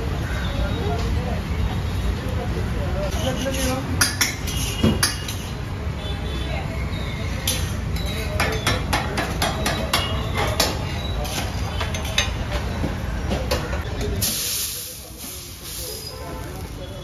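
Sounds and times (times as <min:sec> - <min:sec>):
low traffic rumble: 0:00.0 - 0:17.0
water hissing on hot griddle: 0:14.2 - 0:16.4.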